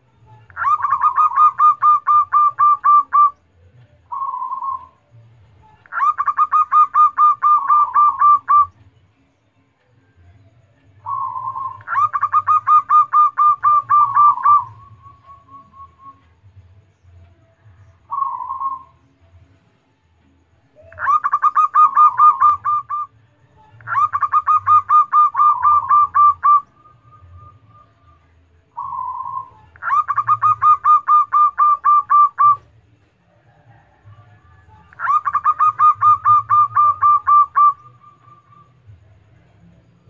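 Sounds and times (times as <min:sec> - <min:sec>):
dove cooing: 0:00.5 - 0:03.4, 0:04.1 - 0:08.7, 0:11.0 - 0:16.2, 0:18.0 - 0:19.0, 0:20.7 - 0:23.1, 0:23.8 - 0:28.2, 0:28.8 - 0:39.0.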